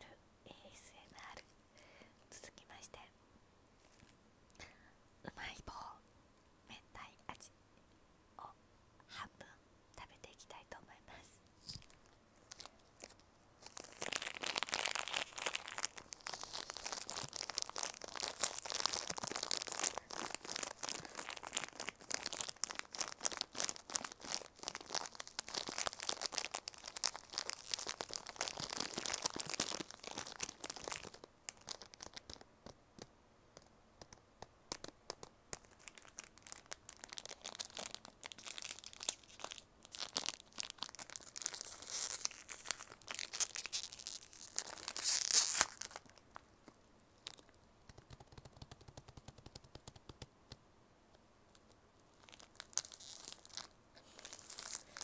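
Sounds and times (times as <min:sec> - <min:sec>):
plastic wrapper crinkling: 0:11.6 - 0:32.8, 0:34.7 - 0:50.0, 0:51.5 - 0:55.0.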